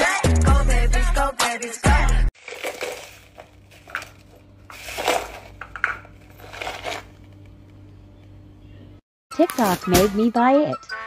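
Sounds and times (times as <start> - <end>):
hip-hop music: 0.0 - 2.3
ice cubes clinking: 2.4 - 7.2.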